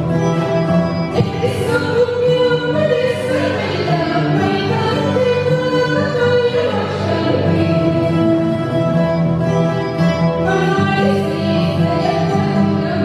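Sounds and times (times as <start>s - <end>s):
woman singing long notes: 1.2s - 8.6s.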